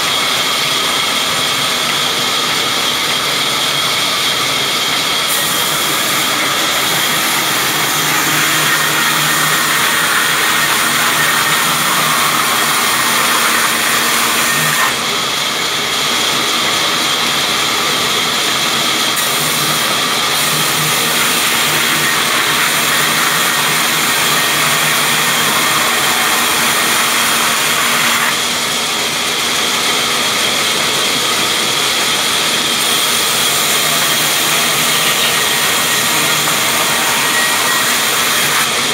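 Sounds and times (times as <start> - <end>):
band saw blade cutting log: 0.0 - 17.2, 19.0 - 38.9
saw motor running: 0.0 - 38.9.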